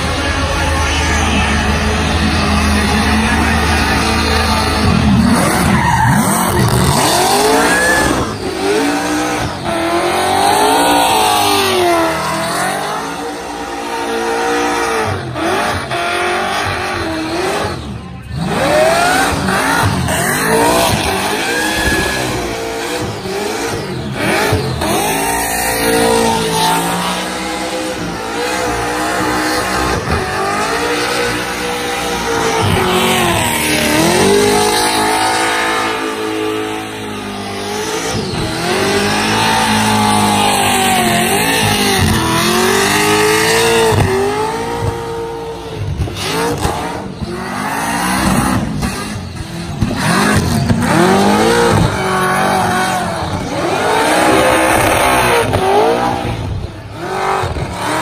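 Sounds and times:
tyres squealing: 0.0s - 12.0s
car engine revving hard: 0.0s - 58.0s.

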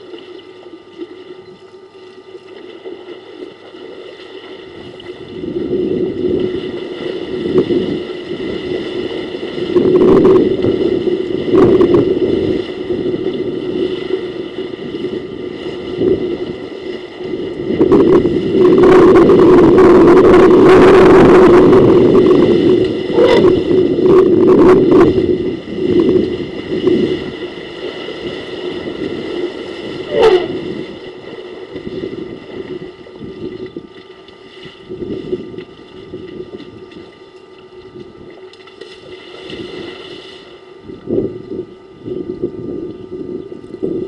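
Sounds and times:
elephants splashing in water: 26.1s - 40.6s.

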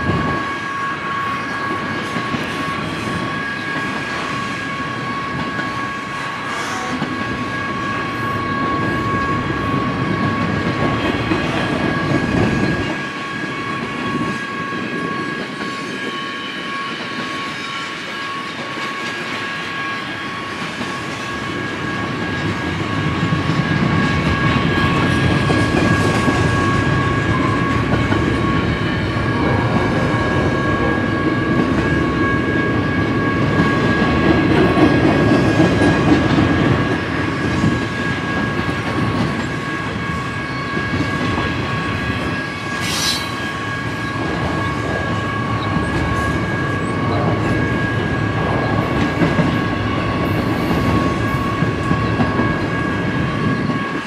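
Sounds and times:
train wheels rumbling on rails: 0.0s - 54.0s
sharp screech or clank: 42.7s - 43.6s.

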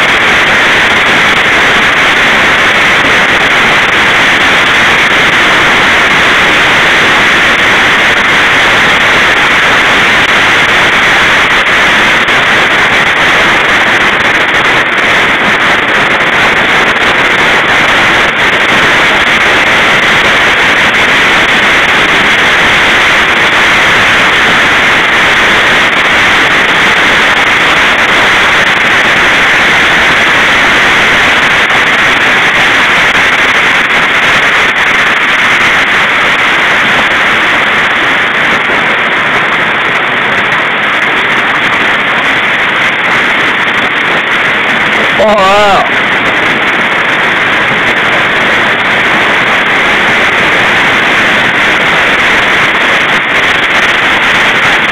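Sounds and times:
heavy hail falling: 0.0s - 54.9s.

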